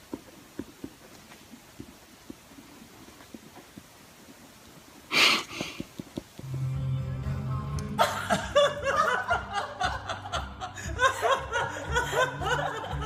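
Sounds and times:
background music with bass: 6.4s - 13.0s
laughter: 8.0s - 13.0s.

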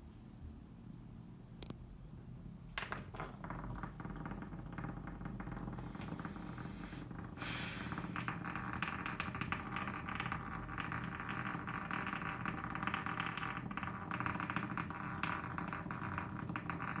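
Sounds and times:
toy rattling on wooden floor: 2.8s - 7.3s
scratchy burst: 5.8s - 11.0s.

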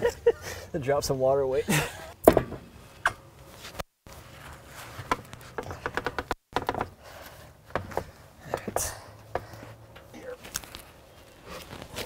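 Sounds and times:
wooden slabs knocking and clattering: 2.2s - 2.7s, 5.0s - 7.0s.

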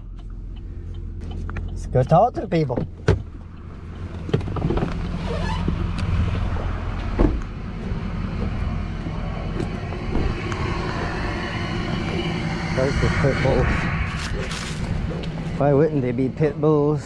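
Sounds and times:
truck engine idling: 0.0s - 12.8s.

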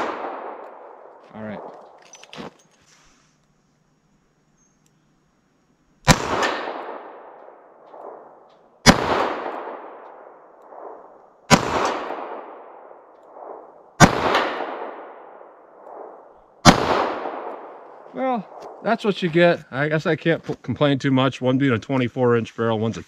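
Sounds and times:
faint echo of gunshot: 0.0s - 1.7s, 6.0s - 17.8s
revolver gunshots: 0.0s - 1.8s, 6.0s - 17.8s.

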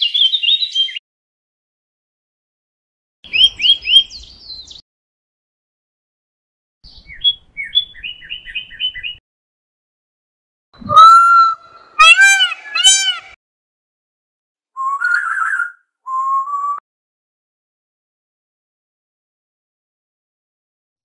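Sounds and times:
small songbird chirping: 0.0s - 1.0s, 3.3s - 4.8s, 6.8s - 9.2s.

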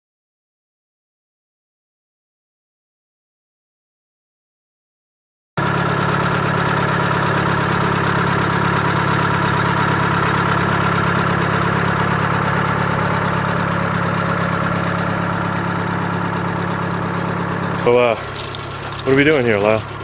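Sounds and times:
engine idling: 5.6s - 20.0s.

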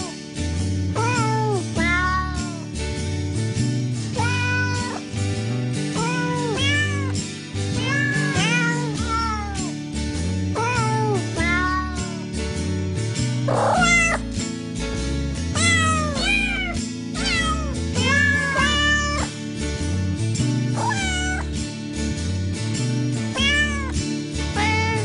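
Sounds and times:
bass notes: 0.0s - 1.2s, 2.8s - 11.6s, 12.4s - 25.0s
cat meows pitched to a tune: 1.0s - 2.7s, 4.2s - 5.0s, 6.0s - 7.2s, 7.8s - 9.8s, 10.6s - 12.3s, 13.5s - 14.2s, 15.6s - 19.3s, 20.8s - 21.5s, 23.4s - 25.0s.

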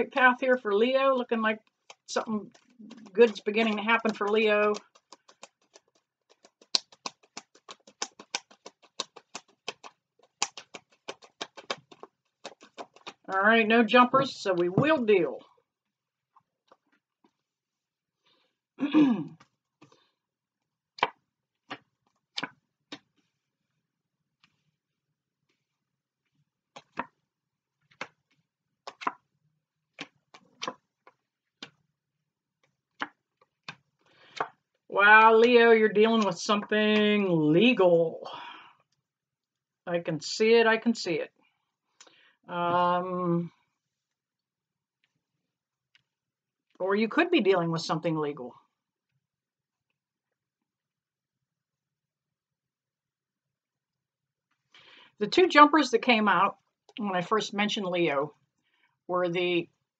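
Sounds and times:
cards being shuffled: 1.7s - 13.3s, 21.0s - 23.4s, 26.8s - 27.2s, 27.8s - 29.2s, 30.0s - 31.8s, 32.6s - 34.6s.

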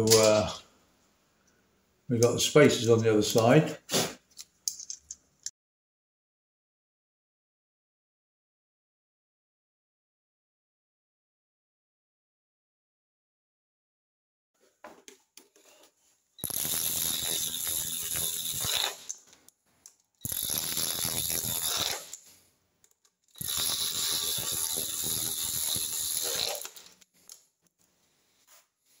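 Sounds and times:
socket ratchet clicking: 20.2s - 22.2s, 23.3s - 27.0s.

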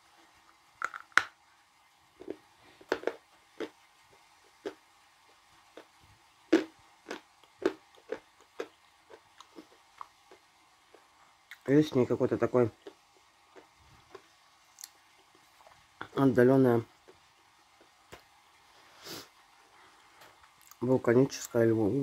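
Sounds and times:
chewing crisp clay crunches: 6.5s - 11.6s.

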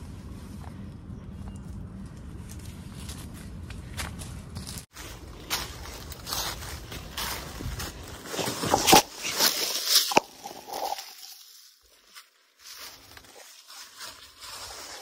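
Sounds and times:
footsteps crunching dry leaves: 2.4s - 15.0s
hand rustling leaf litter: 4.9s - 15.0s.

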